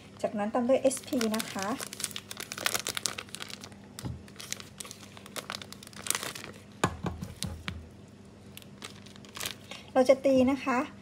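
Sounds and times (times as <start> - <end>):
plastic bag crinkling: 0.8 - 7.7, 8.5 - 9.9.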